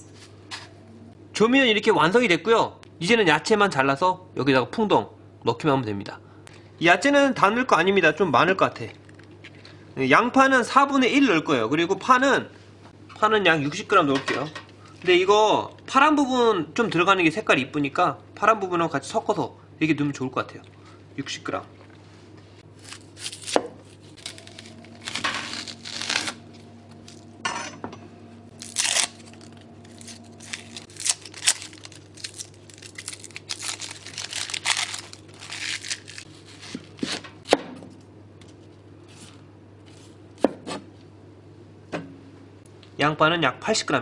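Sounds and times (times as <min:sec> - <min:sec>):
onion skin peeling: 0:22.7 - 0:27.3, 0:28.5 - 0:37.2
knife cutting onion: 0:36.4 - 0:37.6, 0:40.4 - 0:40.9.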